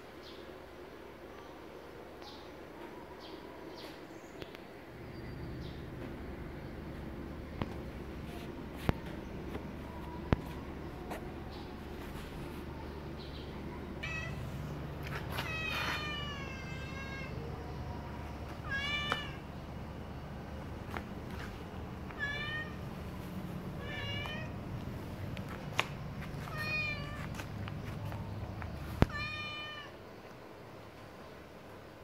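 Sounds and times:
cat meowing: 14.0 - 14.6, 15.3 - 17.5, 18.6 - 19.4, 22.1 - 22.8, 23.8 - 24.6, 26.5 - 27.4, 29.0 - 30.0.

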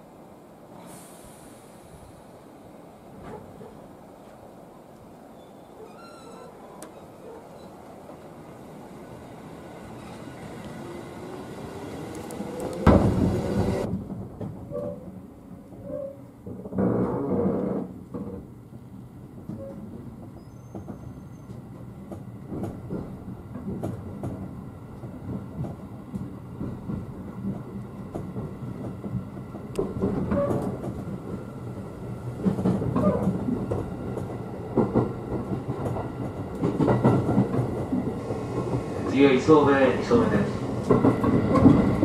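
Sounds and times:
train running noise: 3.0 - 16.8, 17.9 - 42.0
wheels clicking over rail joints: 12.0 - 39.7, 40.7 - 42.0.

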